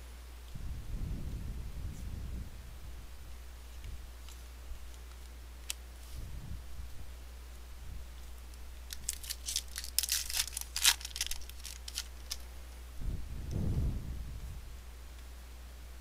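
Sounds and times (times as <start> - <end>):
wrapper tearing and crinkling: 8.9 - 12.5.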